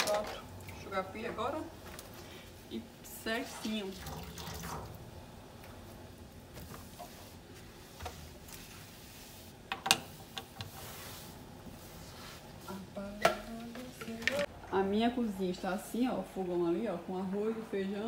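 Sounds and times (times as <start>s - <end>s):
brush scrubbing a metal sink: 3.2s - 5.0s, 5.8s - 13.2s.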